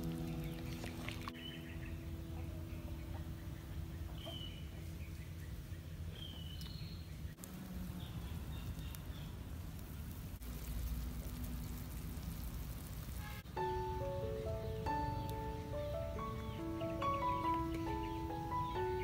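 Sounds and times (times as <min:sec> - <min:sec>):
pot of soup boiling hard: 0:08.2 - 0:13.4.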